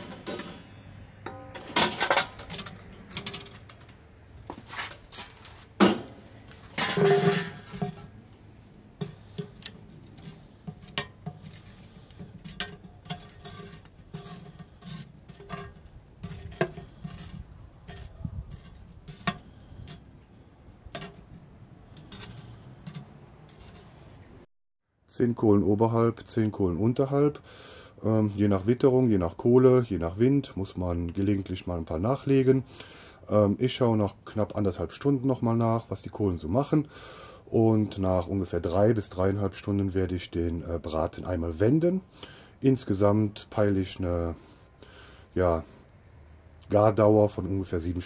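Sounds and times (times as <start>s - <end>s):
metal clanks: 1.2s - 4.0s, 5.8s - 8.2s, 9.0s - 20.0s
tongs clinking charcoal on metal: 1.2s - 4.0s, 6.5s - 8.1s, 8.9s - 20.1s, 20.9s - 23.9s.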